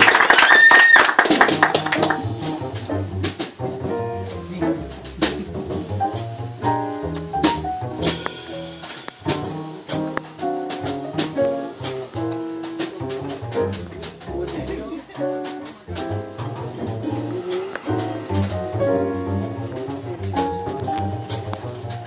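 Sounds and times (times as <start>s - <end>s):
jazz piano playing: 1.2s - 22.0s
plucked double bass: 1.3s - 22.0s
drum and cymbal strokes: 2.4s - 13.2s, 15.2s - 21.9s.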